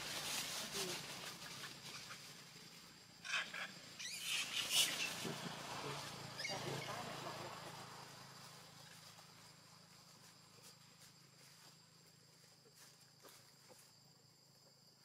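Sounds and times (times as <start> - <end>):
high-pitched insect drone: 1.5 - 11.8.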